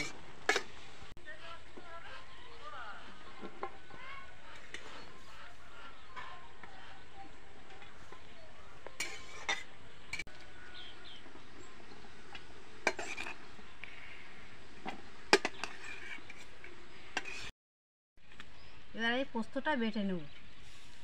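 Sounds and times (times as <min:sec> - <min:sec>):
metal tongs clinking on plate and pot: 0:00.0 - 0:00.7, 0:09.0 - 0:10.2, 0:12.8 - 0:13.4.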